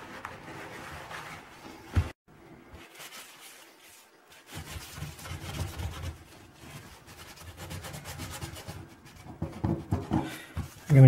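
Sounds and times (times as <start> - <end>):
sponge scrubbing porcelain sink: 2.8 - 11.0.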